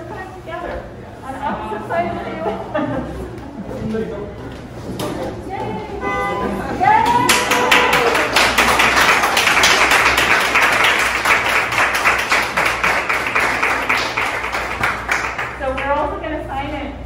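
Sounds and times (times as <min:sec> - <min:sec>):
crowd applauding: 0:07.0 - 0:16.0.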